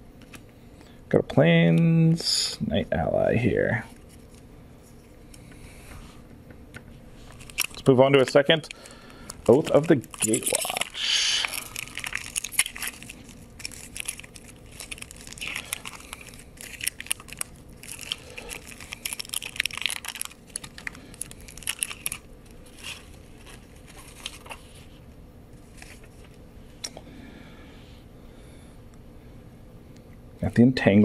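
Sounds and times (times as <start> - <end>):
foil wrapper crinkling and tearing: 7.2 - 25.0.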